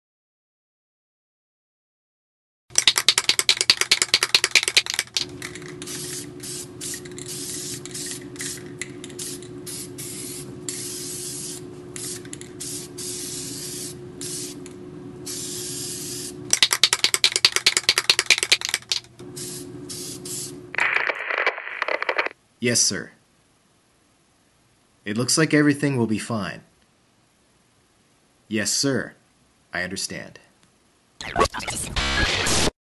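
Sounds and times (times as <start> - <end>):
spray can rattling: 2.7 - 14.7, 15.3 - 20.5
steady low hum: 2.7 - 31.2
spray paint hissing: 2.8 - 20.6.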